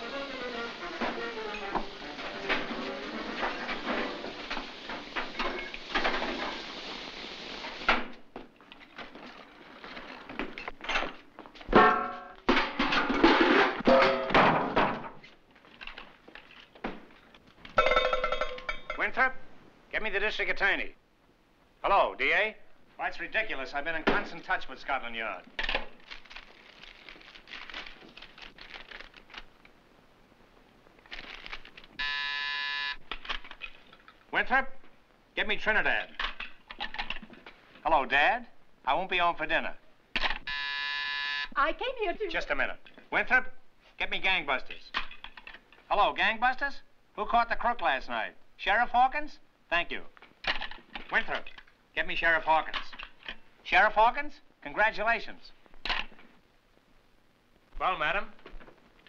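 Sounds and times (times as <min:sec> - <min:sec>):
wooden furniture clattering: 0:01.0 - 0:06.8, 0:08.0 - 0:18.9.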